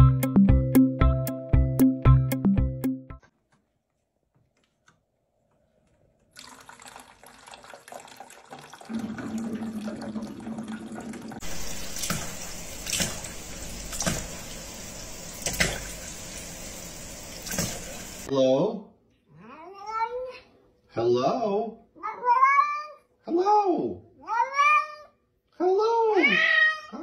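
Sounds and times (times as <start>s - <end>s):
tap running into sink: 8.9s - 18.3s.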